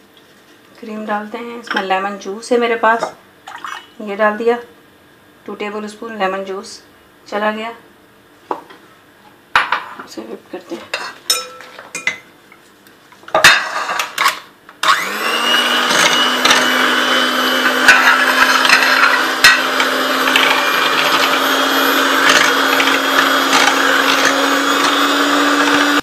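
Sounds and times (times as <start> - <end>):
electric mixer motor humming: 14.8 - 26.0.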